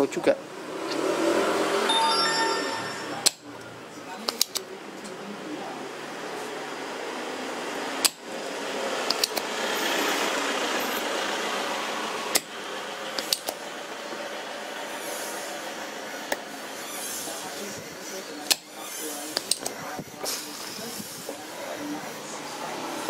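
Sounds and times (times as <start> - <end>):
sharp clicks: 9.1 - 9.5, 13.2 - 13.6.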